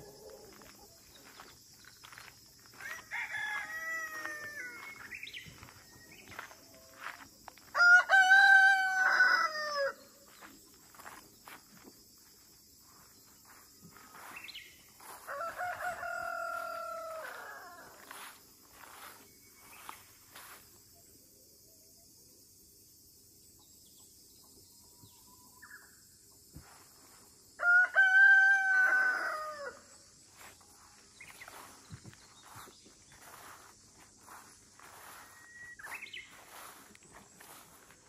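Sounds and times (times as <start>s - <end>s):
rooster crowing: 2.7s - 5.7s, 7.0s - 10.1s, 15.0s - 19.1s, 27.6s - 30.0s.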